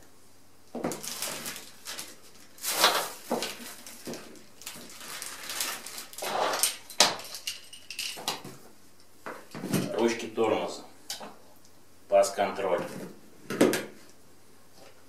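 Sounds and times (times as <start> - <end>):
plastic bags crinkling: 0.8 - 8.3.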